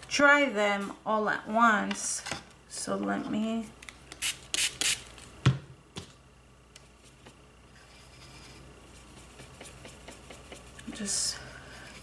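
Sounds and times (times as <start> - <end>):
spray bottle hiss: 4.2 - 5.0.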